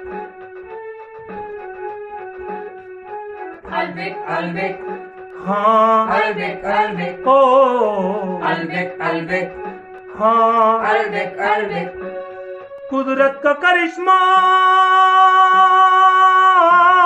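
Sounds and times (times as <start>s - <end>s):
sustained keyboard chords: 0.0s - 17.0s.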